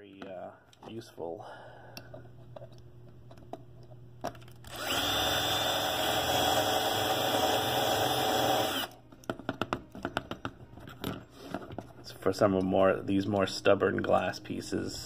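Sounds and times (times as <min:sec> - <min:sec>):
power drill whining and grinding: 0:04.6 - 0:09.0.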